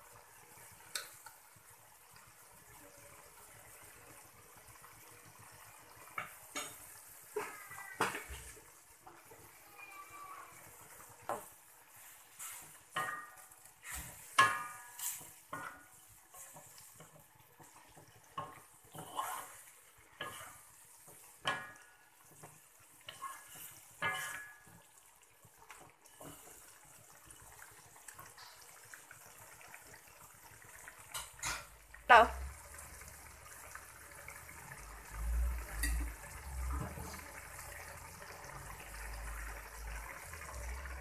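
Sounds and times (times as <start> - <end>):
cooking liquid sloshing: 0.0 - 41.0
spatula knocking and scraping a wok: 12.4 - 19.5, 20.2 - 24.8.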